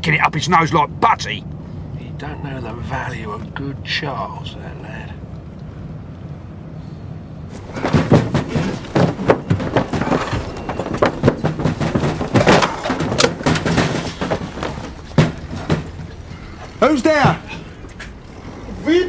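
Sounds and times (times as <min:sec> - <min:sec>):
footsteps on sheet-metal car roofs: 0:07.5 - 0:18.2.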